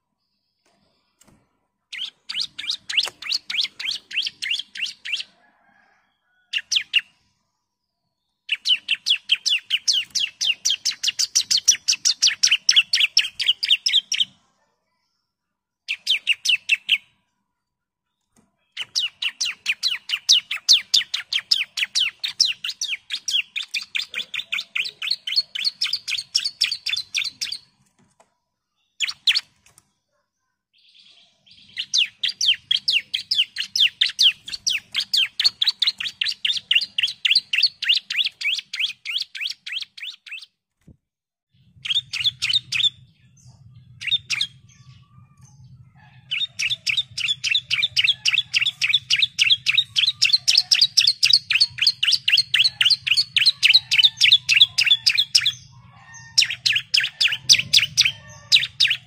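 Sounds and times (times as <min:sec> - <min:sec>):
bird calling in rapid chip notes: 0:01.9 - 0:05.3.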